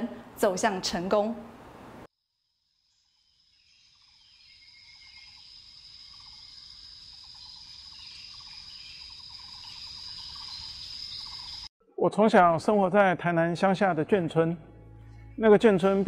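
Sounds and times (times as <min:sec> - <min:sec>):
high-pitched insect drone: 0:02.2 - 0:11.7
insect chirps: 0:02.2 - 0:11.7.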